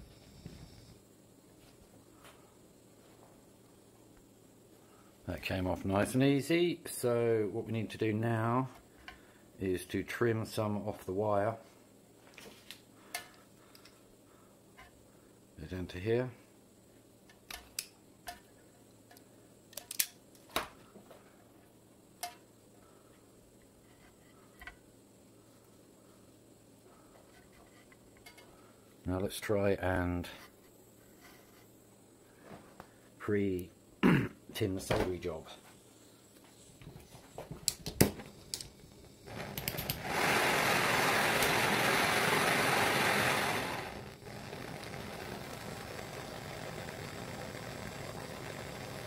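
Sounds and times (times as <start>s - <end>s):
gas torch hissing: 0.0s - 1.1s, 35.9s - 49.0s
hand tools clicking and snipping wire: 19.1s - 20.2s, 39.4s - 40.0s.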